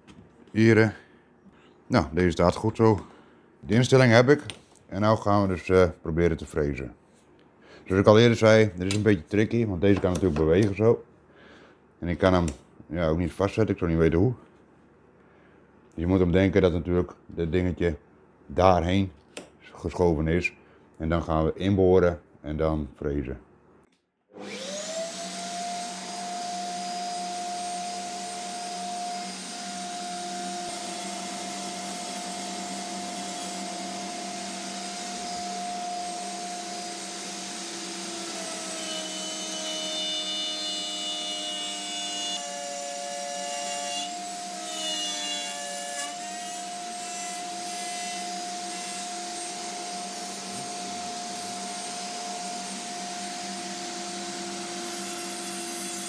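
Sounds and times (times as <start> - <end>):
wood router cutting wood: 24.4 - 56.0.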